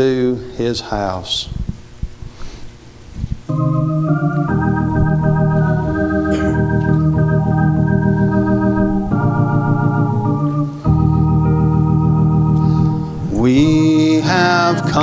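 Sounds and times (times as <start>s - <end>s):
church organ chords: 3.5s - 15.0s.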